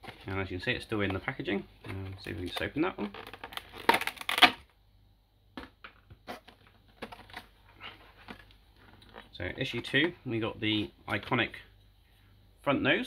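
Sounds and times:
plastic packaging crackling: 2.2 - 4.6.

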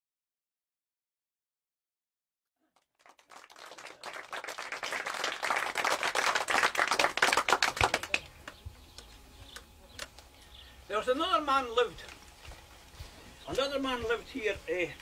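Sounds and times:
audience applause: 2.8 - 8.6.

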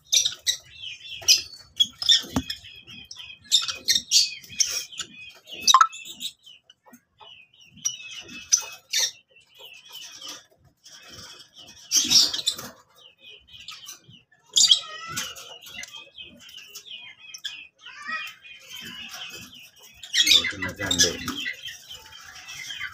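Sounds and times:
lovebirds chirping: 0.1 - 10.4.

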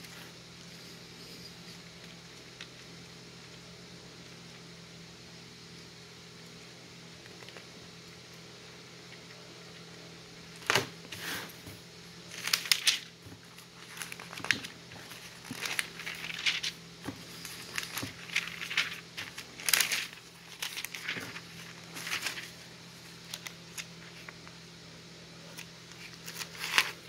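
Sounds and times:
steady low hum: 0.0 - 27.0
paper pages turning: 12.3 - 24.5, 25.5 - 27.0.

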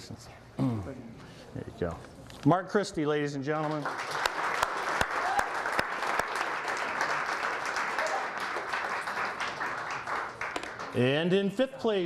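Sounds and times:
audience applauding: 3.5 - 11.2.

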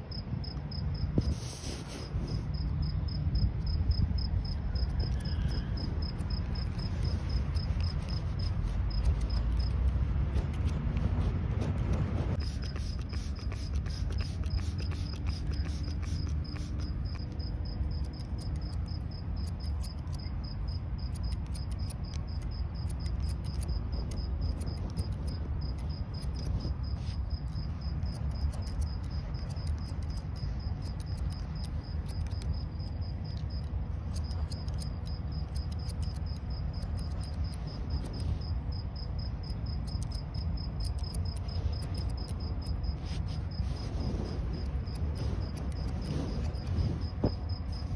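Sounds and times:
cricket chirping: 0.0 - 1.2, 2.3 - 9.8, 12.3 - 47.9
scissors snipping hair: 4.4 - 38.4, 39.7 - 43.9.

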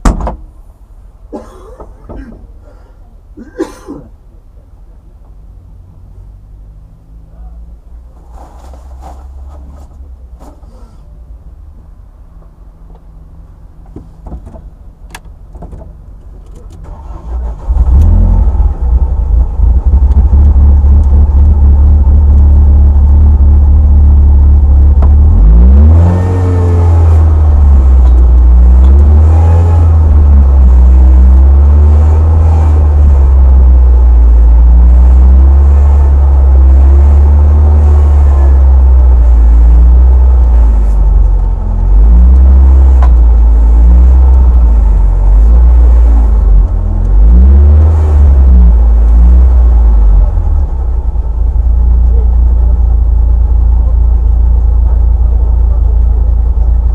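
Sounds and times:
car engine starting: 0.0 - 56.9
car engine idling: 9.0 - 56.9
engine throttle blips: 14.9 - 56.9.

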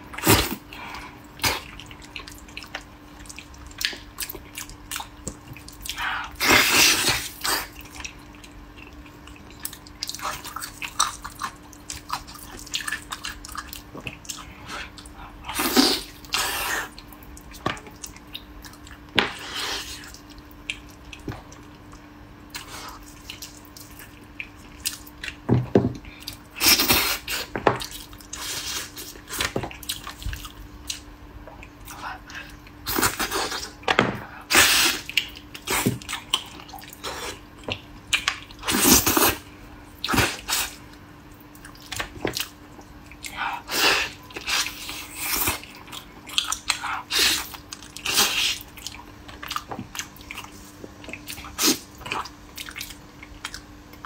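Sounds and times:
faint steady hum: 0.0 - 54.0
person wet eating and sucking: 5.6 - 8.2, 9.3 - 21.2, 43.1 - 53.6.

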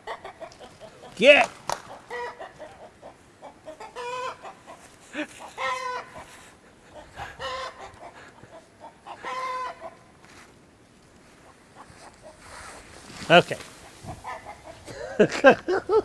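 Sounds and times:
rooster calling: 1.9 - 10.1, 14.1 - 14.8.

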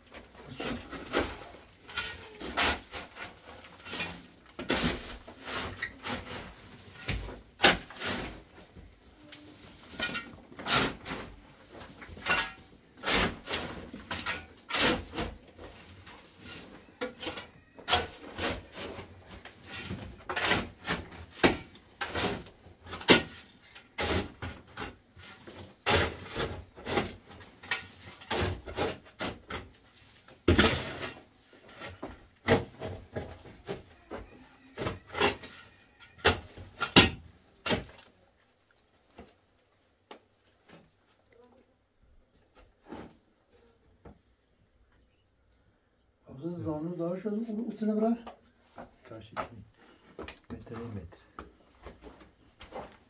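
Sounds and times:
shovel scraping through earth and stones: 0.4 - 8.7.

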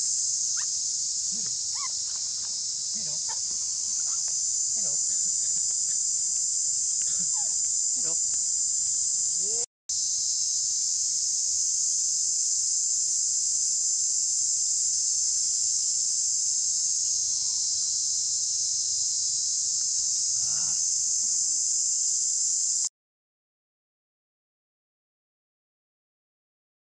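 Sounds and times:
insects shrilling: 0.0 - 22.9.

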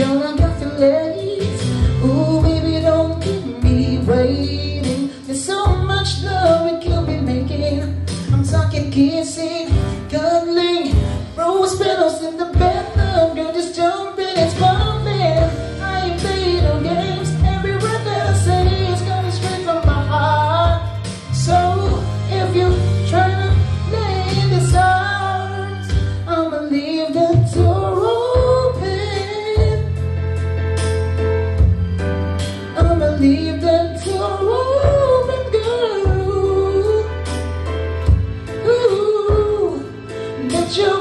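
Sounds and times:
man singing into microphone: 0.0 - 30.2, 32.6 - 37.4, 38.0 - 41.0
music backing track with bass: 0.0 - 41.0.

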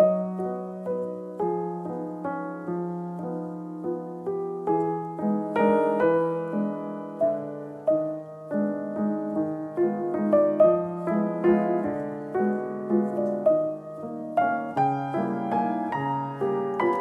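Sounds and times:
slow piano music: 0.0 - 17.0.

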